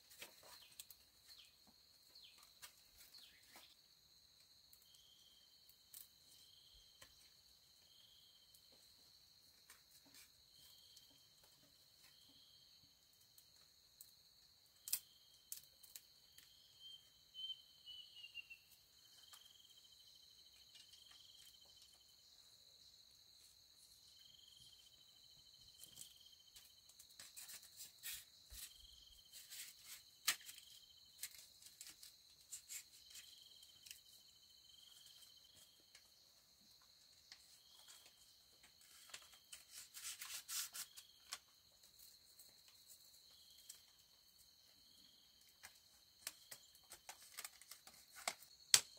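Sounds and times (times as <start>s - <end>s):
insect pulsed chirp: 0.5s - 8.7s, 12.0s - 47.8s
light clicks and crackles: 14.8s - 16.6s, 25.7s - 34.2s, 45.4s - 48.9s.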